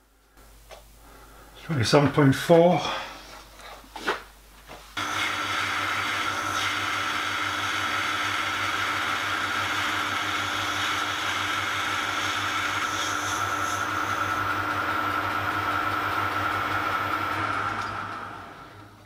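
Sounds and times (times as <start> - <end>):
metal lathe humming and whining: 5.0 - 19.0.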